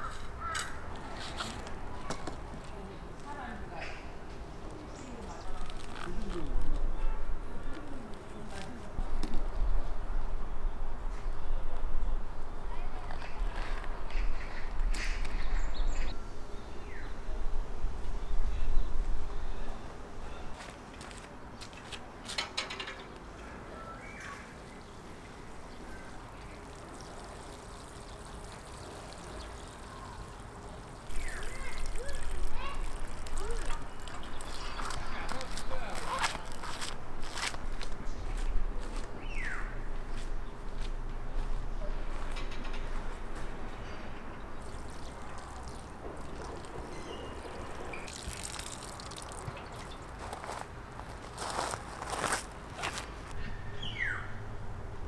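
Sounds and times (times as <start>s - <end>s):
water sprinkling onto plants: 26.2s - 36.6s, 44.6s - 50.5s.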